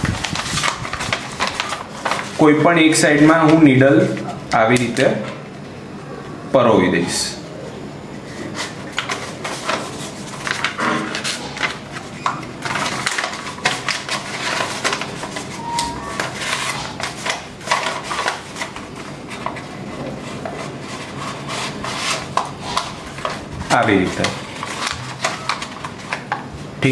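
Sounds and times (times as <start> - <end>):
paper crinkling and rustling: 0.0 - 5.4, 8.3 - 26.9.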